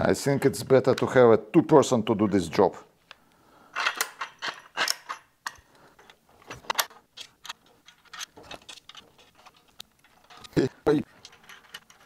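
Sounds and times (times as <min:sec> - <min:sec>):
small metal parts clinking: 0:03.7 - 0:12.0.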